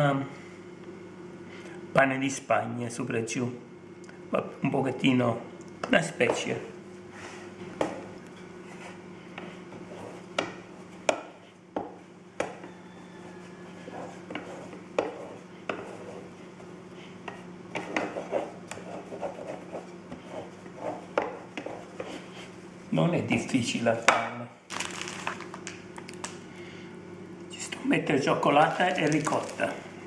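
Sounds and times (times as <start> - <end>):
low steady hum: 0.0 - 30.0
rolling pin rolling dough on stone: 7.8 - 22.6.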